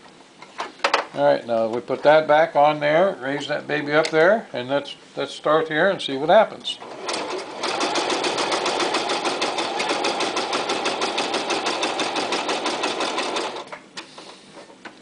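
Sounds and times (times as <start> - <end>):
sewing machine stitching: 6.8 - 13.8.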